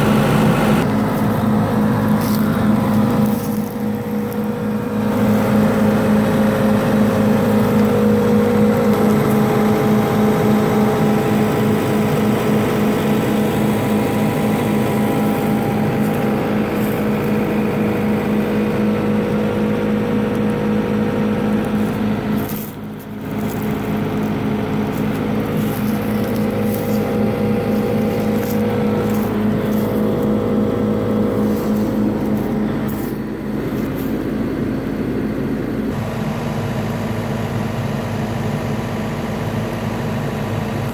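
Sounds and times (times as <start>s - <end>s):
diesel engine running: 0.0s - 40.9s.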